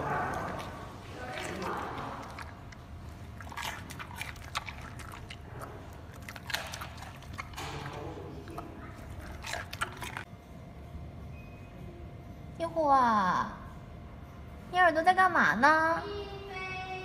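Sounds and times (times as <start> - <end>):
panda crunching carrot: 0.0 - 10.3.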